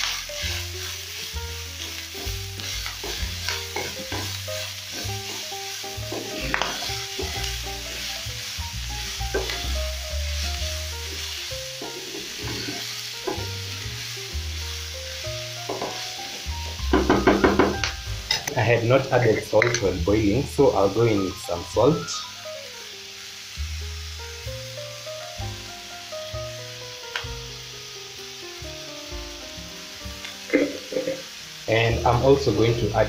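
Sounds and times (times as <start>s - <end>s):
spatula scraping a pan: 0.0s - 8.2s, 9.0s - 13.5s
food sizzling in oil: 0.0s - 33.0s
soft background music: 0.0s - 33.0s.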